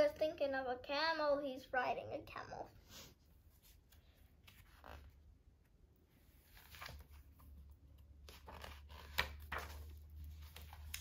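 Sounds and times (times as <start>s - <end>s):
paper pages rustling: 3.4s - 5.3s, 6.2s - 11.0s
page flicking: 10.5s - 11.0s.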